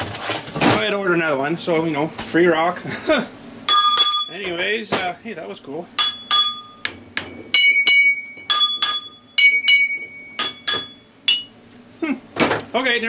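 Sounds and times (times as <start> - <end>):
hammer tapping ringing metal: 3.7 - 4.6, 6.0 - 11.5.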